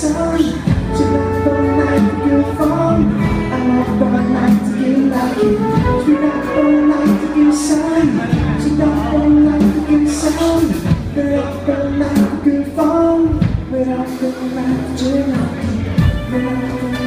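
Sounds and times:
drums: 0.0 - 17.0
electric bass: 0.0 - 17.0
man singing: 0.0 - 17.0.

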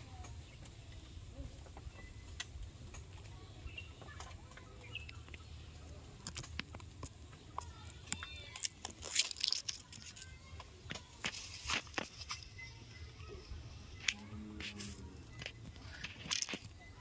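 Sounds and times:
faint bird chirps: 0.0 - 6.0, 12.1 - 17.0
clicks and rustles: 1.6 - 12.7, 14.0 - 17.0.

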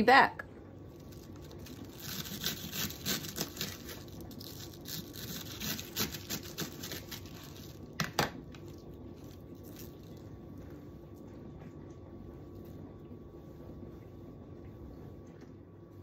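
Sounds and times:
knife slicing cabbage: 1.0 - 8.0.

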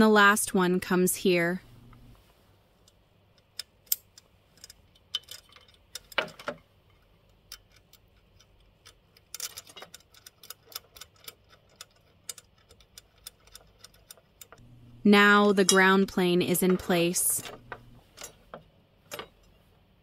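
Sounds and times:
metallic clicks of hardware: 2.8 - 14.6, 17.4 - 19.6
cable rattling: 3.4 - 19.6.

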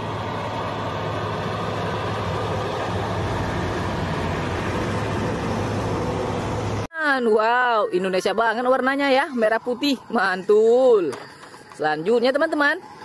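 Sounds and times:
heavy truck engine drone: 0.0 - 6.9
road noise: 0.0 - 13.0.

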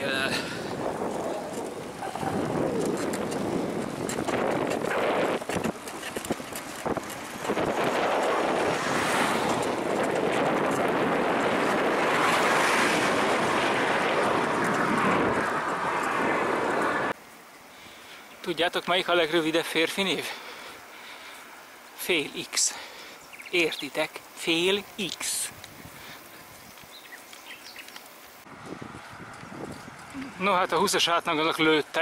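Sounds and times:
wind buffeting microphone: 0.0 - 17.2, 25.5 - 27.8, 28.4 - 30.8.

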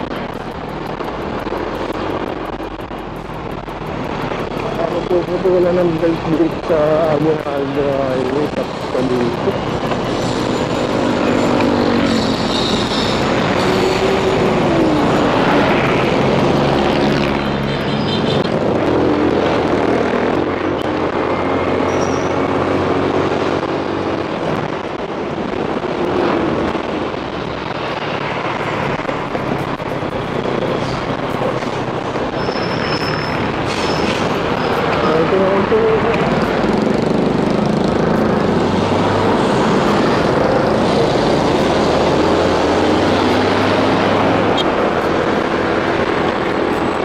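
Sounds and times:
motorcycle engine running: 0.0 - 18.0, 33.3 - 47.0
road noise: 0.0 - 47.0.

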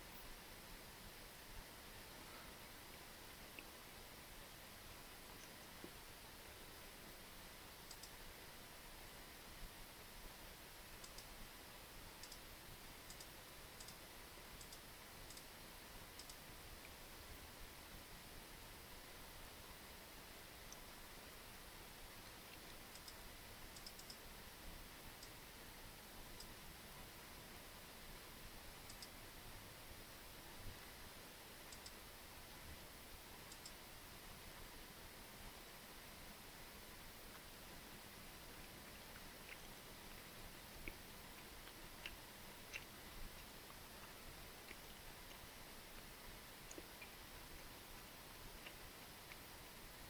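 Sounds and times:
steady background hiss: 0.0 - 50.0
computer mouse clicks: 7.9 - 8.2, 11.0 - 11.3, 12.2 - 12.4, 13.1 - 14.0, 14.6 - 15.5, 16.2 - 16.4, 22.6 - 23.2, 23.8 - 24.3, 28.8 - 29.2, 31.7 - 32.0, 33.4 - 33.8.

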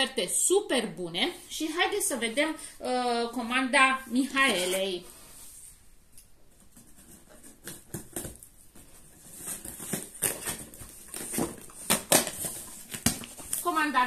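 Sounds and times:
packing tape pulled off box: 7.3 - 13.7.

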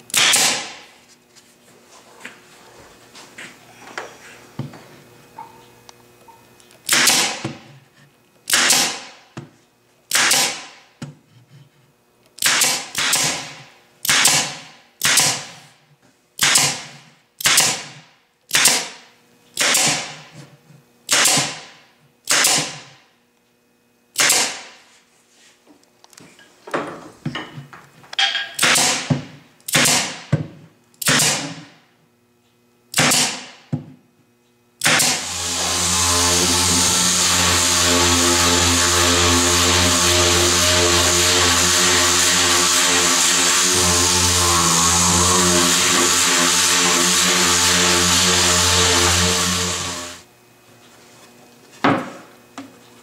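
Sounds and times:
nail gun firing into wood: 0.1 - 0.8, 6.9 - 7.6, 8.5 - 9.2, 10.1 - 10.8, 12.4 - 15.5, 16.4 - 19.0, 19.6 - 20.2, 21.1 - 21.7, 22.3 - 22.9, 24.2 - 24.8, 28.6 - 30.3, 31.0 - 31.8, 32.9 - 33.7, 34.8 - 35.4.

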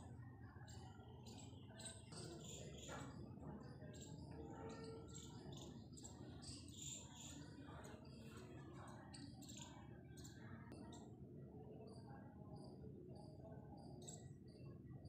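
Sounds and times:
small birds chirping: 0.5 - 11.1.

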